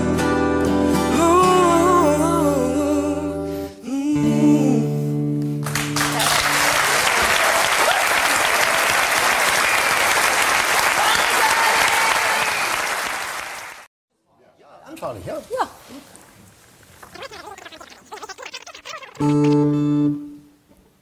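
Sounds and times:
guitar: 0:00.0 - 0:06.7, 0:19.0 - 0:20.9
person singing with vibrato: 0:00.9 - 0:05.4
audience applauding: 0:05.6 - 0:13.9.

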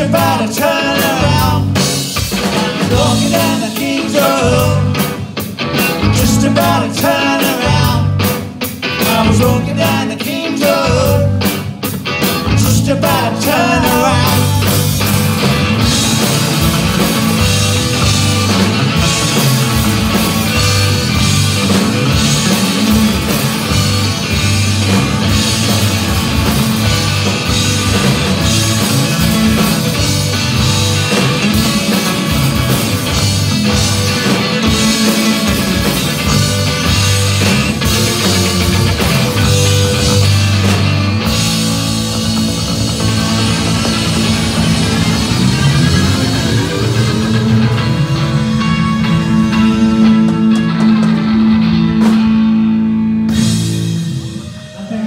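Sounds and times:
person singing: 0:00.0 - 0:05.1, 0:06.0 - 0:08.2, 0:09.0 - 0:11.4, 0:12.5 - 0:14.8
bass guitar: 0:00.0 - 0:55.0
drum kit: 0:00.0 - 0:55.0
electric guitars: 0:00.0 - 0:55.0.

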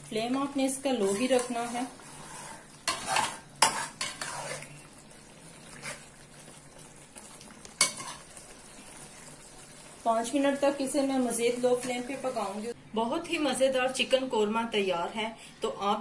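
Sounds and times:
faint sizzle of cooking gravy: 0:00.0 - 0:12.8
metal spatula scraping a pot: 0:00.9 - 0:04.9, 0:05.7 - 0:06.1, 0:07.8 - 0:08.4.

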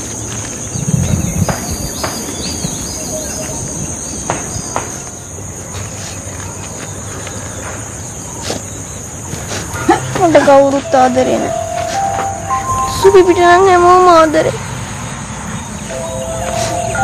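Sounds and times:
high-pitched insect chorus: 0:00.0 - 0:17.0
bird chirps: 0:00.5 - 0:05.4, 0:15.5 - 0:17.0
low thumps and clicks: 0:00.7 - 0:02.8.

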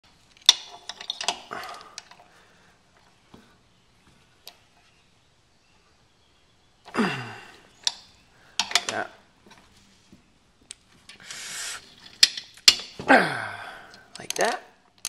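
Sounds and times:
wrench clicking on bolts: 0:00.3 - 0:02.2, 0:07.8 - 0:09.1, 0:13.9 - 0:14.6.

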